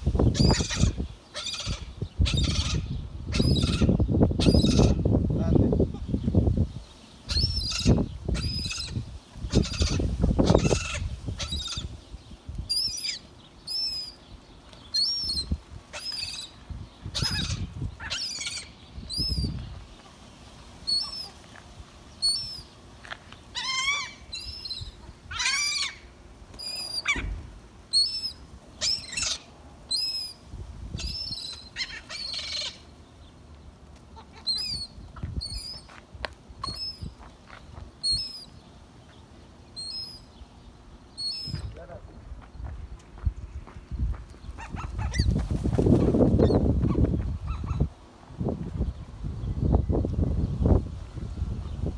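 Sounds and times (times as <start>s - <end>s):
gulls calling: 0.2s - 5.1s, 7.2s - 12.0s, 12.7s - 20.2s, 20.8s - 21.4s, 23.5s - 33.0s, 34.0s - 36.0s
wings flapping: 44.6s - 47.3s.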